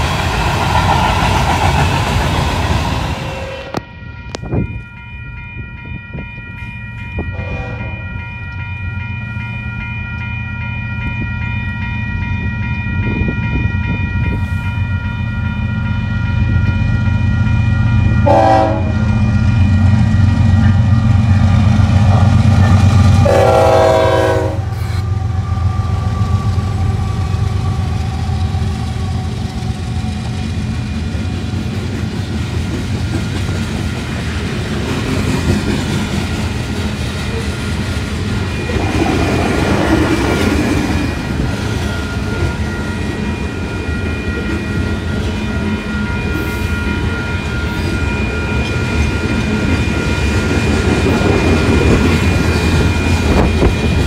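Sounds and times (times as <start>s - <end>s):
train cars clickety-clack: 0.0s - 5.0s, 5.6s - 54.0s
diesel locomotive engine rumble: 0.0s - 54.0s
train horn: 3.1s - 3.9s, 7.3s - 8.0s, 18.2s - 19.2s, 22.0s - 26.9s.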